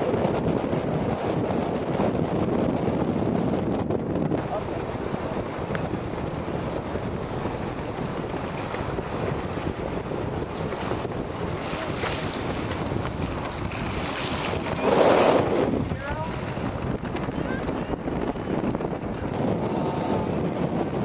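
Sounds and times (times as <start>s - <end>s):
wind buffeting microphone: 0.0s - 21.0s
water rushing and splashing: 4.4s - 17.8s.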